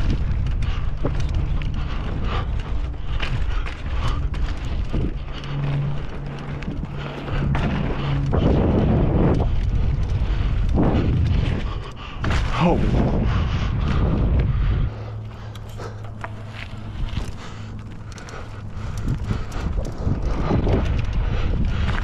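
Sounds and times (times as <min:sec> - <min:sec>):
bike knocks and rattles: 0:00.0 - 0:14.6
steady low hum: 0:00.0 - 0:22.0
tyres rumbling over dirt: 0:00.0 - 0:22.0
wind rushing over microphone: 0:00.0 - 0:22.0.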